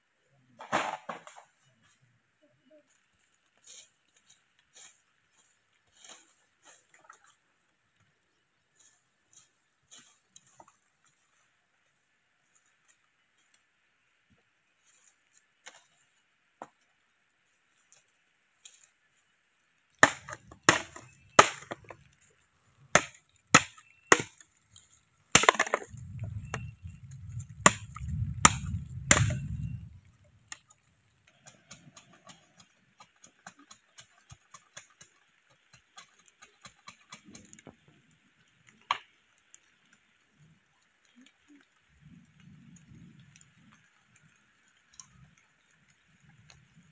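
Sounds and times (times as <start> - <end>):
machete chopping: 20.0 - 22.0, 23.0 - 24.4, 25.4 - 25.9, 27.7 - 29.4
low rumble: 25.9 - 30.6
faint ticks: 29.5 - 46.9.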